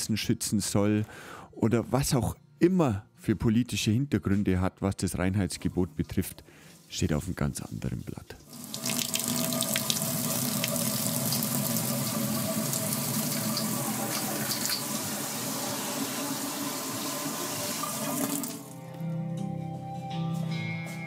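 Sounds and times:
tap water running: 8.4s - 18.8s.

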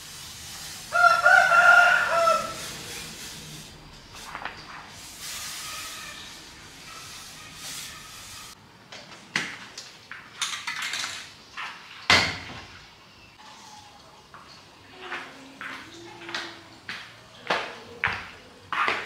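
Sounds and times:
steady hiss: 0.0s - 8.6s.

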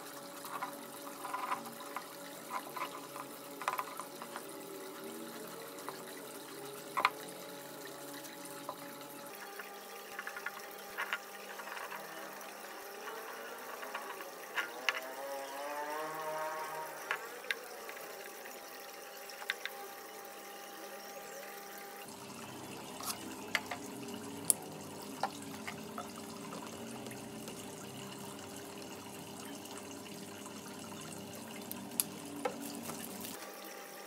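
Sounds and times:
paint pouring into plastic bowl: 0.0s - 15.7s.

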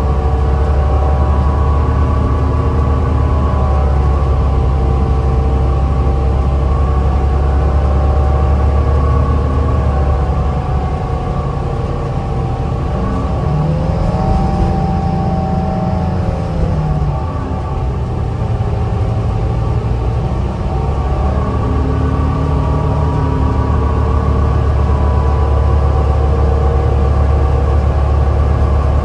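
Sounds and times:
bus diesel engine rumble: 0.0s - 29.0s
road noise: 0.0s - 29.0s
steady drive whine: 0.0s - 29.0s
rising tone: 12.9s - 19.6s.

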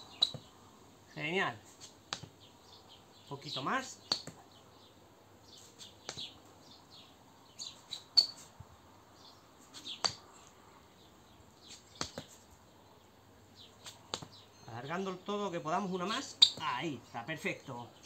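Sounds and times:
shoes scuffing on stone paving: 0.1s - 0.5s, 5.5s - 6.4s, 9.6s - 10.2s, 11.6s - 12.4s.

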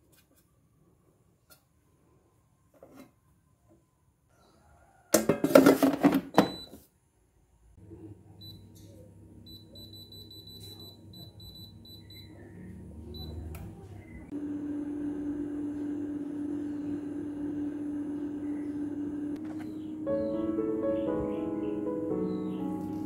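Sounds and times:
air fryer humming: 7.8s - 23.0s.

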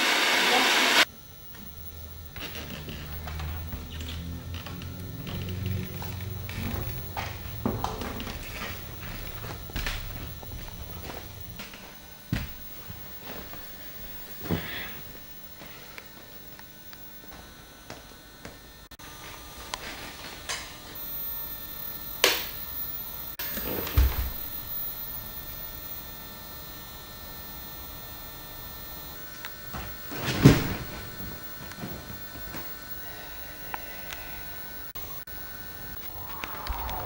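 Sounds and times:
thin high whine: 0.0s - 37.0s
low hum: 33.8s - 37.0s.

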